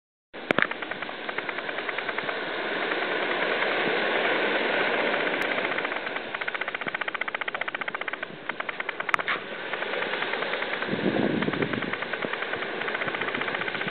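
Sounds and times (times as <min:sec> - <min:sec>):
fine crackle of surf: 0:00.4 - 0:13.9
waves breaking on beach: 0:00.4 - 0:13.9.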